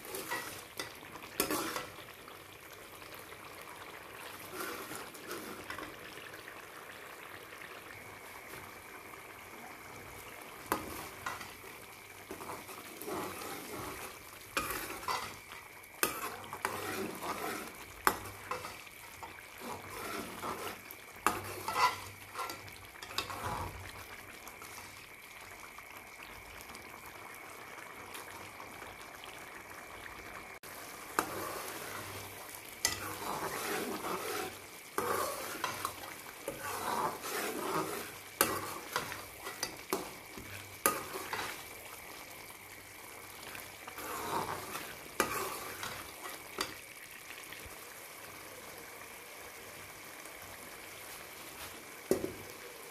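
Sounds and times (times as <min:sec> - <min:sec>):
food sizzling in a pot: 0:00.0 - 0:52.9
metal ladle scraping a pot: 0:00.1 - 0:01.9, 0:04.4 - 0:05.9, 0:12.3 - 0:15.4, 0:16.0 - 0:23.8, 0:32.8 - 0:41.6, 0:43.9 - 0:46.7.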